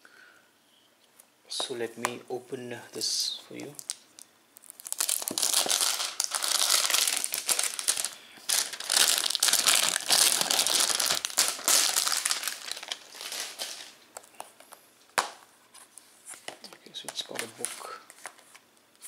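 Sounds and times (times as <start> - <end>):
plastic shrink-wrap crinkling: 3.6 - 14.4.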